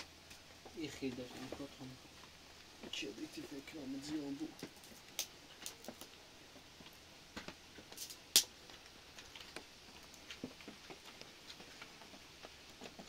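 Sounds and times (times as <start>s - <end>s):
sticks clicking and knocking: 7.3s - 13.0s.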